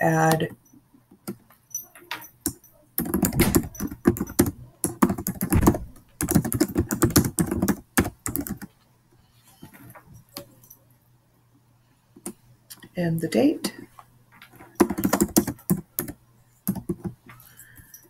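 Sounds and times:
keyboard typing: 2.4 - 8.7, 14.5 - 18.0.

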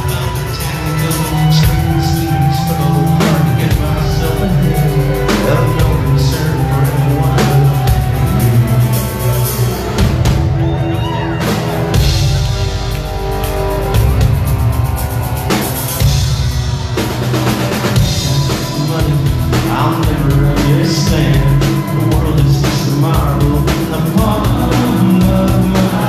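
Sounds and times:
rock band playing live: 0.0 - 26.0.

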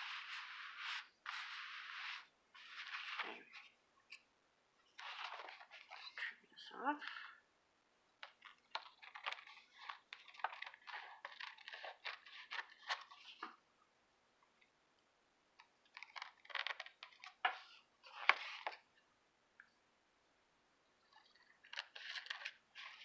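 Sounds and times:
paper handling: 8.2 - 13.6.

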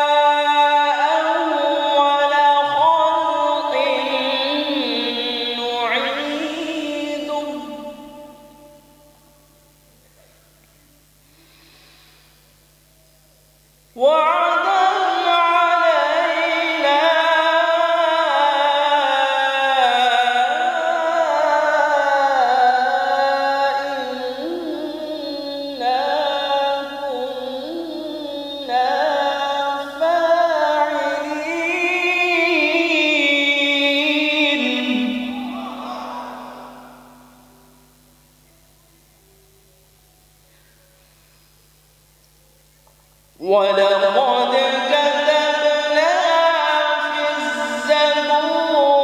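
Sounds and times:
man reciting in melodic chant: 0.0 - 9.1, 13.9 - 37.8, 43.4 - 49.0.

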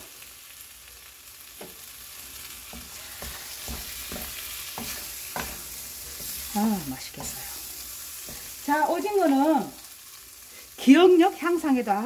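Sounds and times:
pan sizzling: 0.0 - 12.0
spatulas scraping a wok: 1.5 - 10.8.

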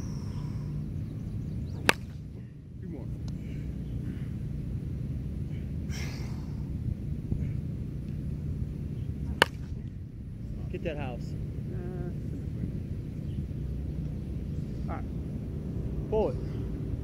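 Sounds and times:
low outdoor rumble: 0.0 - 17.0
bat hitting softball: 1.7 - 2.4, 9.2 - 10.0.

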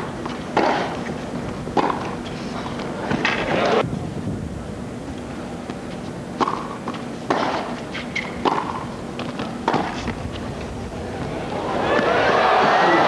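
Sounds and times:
low stadium hum: 0.0 - 13.0
tennis ball hit by rackets: 0.2 - 1.1, 1.8 - 2.1, 6.4 - 10.2.

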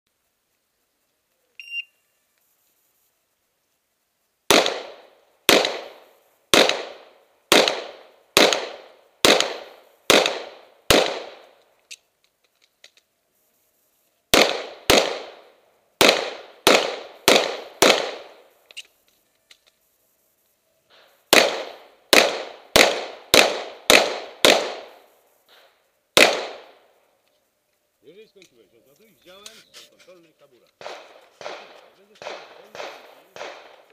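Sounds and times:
handgun shots echoing: 4.5 - 6.0, 6.6 - 11.6, 16.0 - 18.4, 21.3 - 26.8, 30.8 - 33.9.

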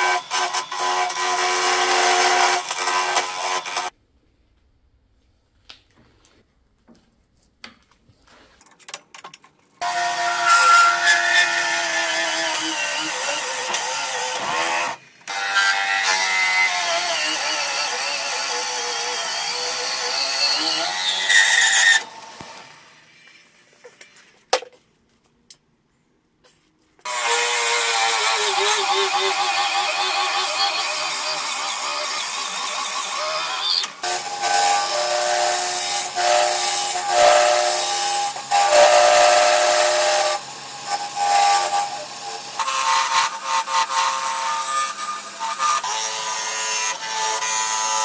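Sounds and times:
drill bit boring into resin: 27.1 - 40.4.

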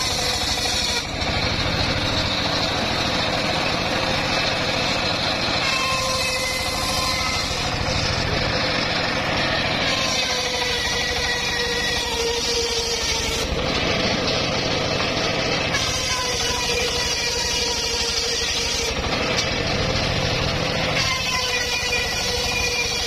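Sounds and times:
circular saw ripping wood: 0.0 - 23.0.

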